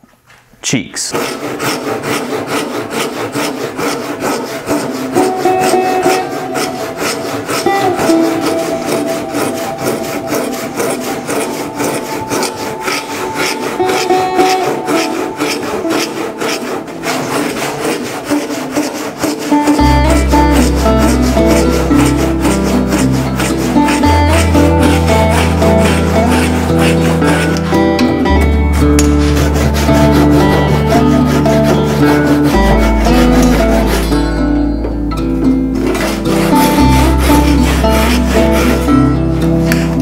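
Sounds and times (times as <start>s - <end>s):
hand saw cutting wood: 0.9s - 34.7s, 35.4s - 40.0s
soft plucked-string music: 5.2s - 15.9s, 19.5s - 40.0s.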